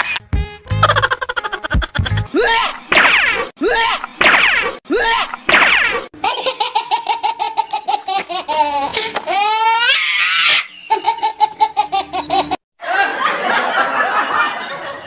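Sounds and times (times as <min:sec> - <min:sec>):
high-pitched laughter: 0:00.8 - 0:02.8, 0:06.2 - 0:13.5.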